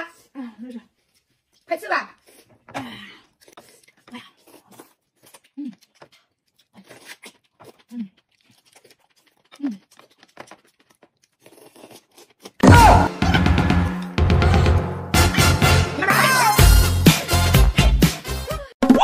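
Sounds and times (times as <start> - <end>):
chewing: 0.0 - 12.6
noodles slurped: 0.0 - 12.6
loud music: 12.6 - 18.6.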